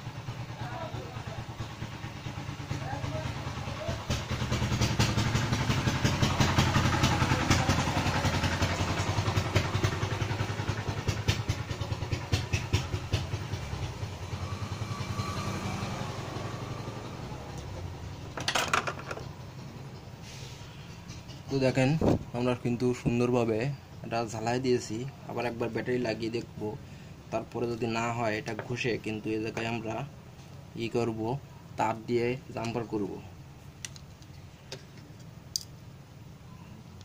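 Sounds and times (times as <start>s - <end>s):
vehicle engine running: 0.0s - 23.1s.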